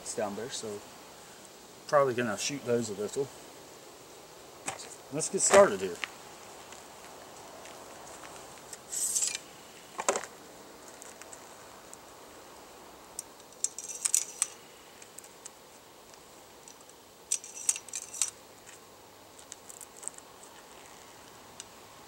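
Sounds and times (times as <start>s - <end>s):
magazine tube scrape: 8.7s - 9.5s.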